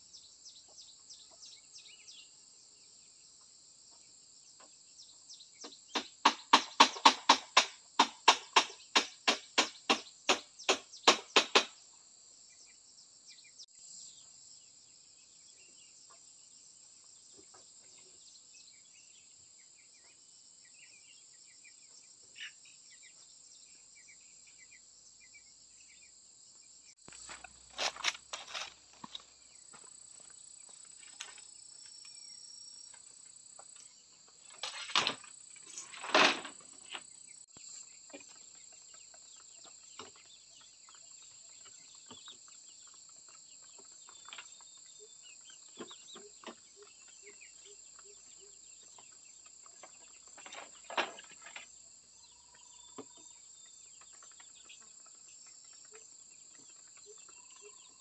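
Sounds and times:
insects buzzing: 22.4 - 58.0.

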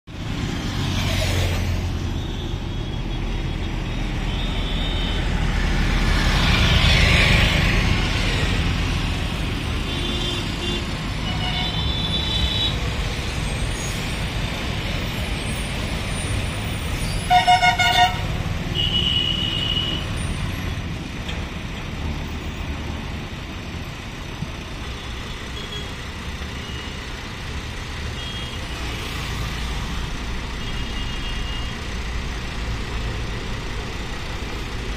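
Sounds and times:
highway traffic passing: 0.0 - 34.9
vehicle horn toots: 17.2 - 20.0.

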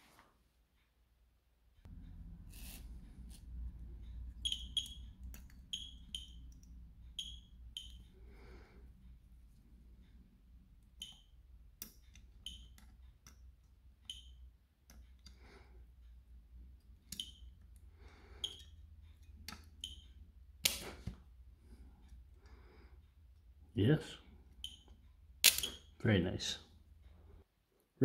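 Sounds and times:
spot welder snaps: 20.6 - 21.1, 25.4 - 25.8.

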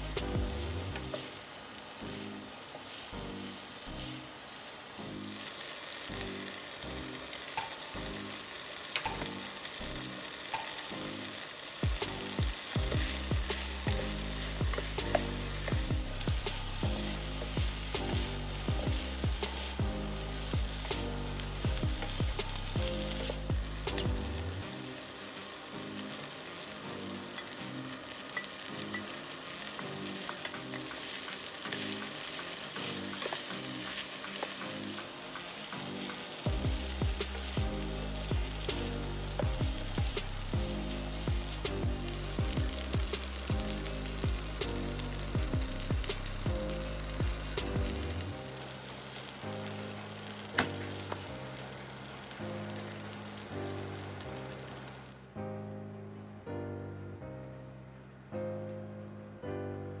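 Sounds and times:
vegetables sizzling in a pan: 0.0 - 55.2
soft background music: 0.0 - 60.0
wooden spatula scraping a pan: 28.4 - 36.4.

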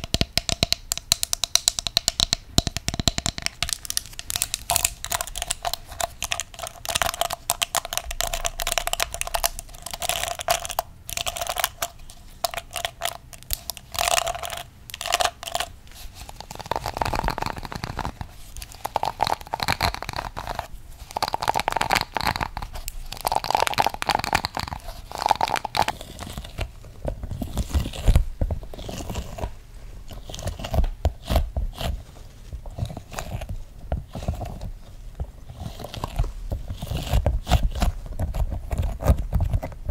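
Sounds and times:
toy dinosaurs knocking: 0.0 - 4.0
comb scratched with crackly clicks: 0.0 - 29.6.

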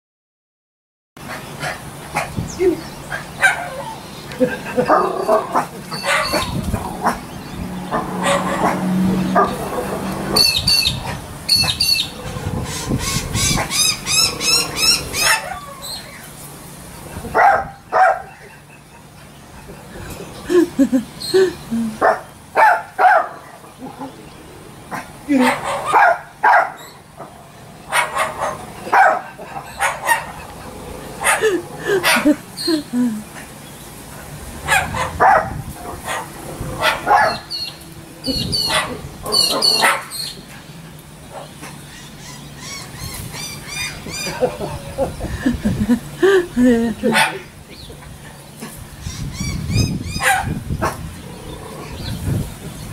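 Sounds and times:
bark-like bird calls: 4.9 - 9.7, 10.4 - 16.2, 17.4 - 19.7, 27.9 - 30.6, 34.7 - 40.4, 49.1 - 51.0
cockatoo calling: 10.4 - 16.4, 36.8 - 40.4, 41.7 - 45.5.

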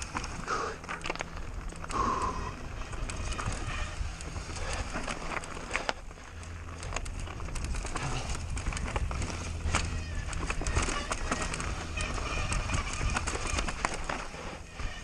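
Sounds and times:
low rumble of riding: 0.0 - 15.0
bicycle knocks and rattles: 2.7 - 15.0.

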